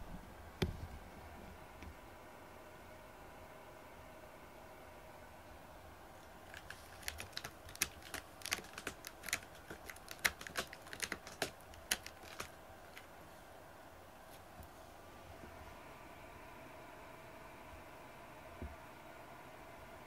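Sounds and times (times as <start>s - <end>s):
cat scratching cardboard: 6.4s - 13.1s.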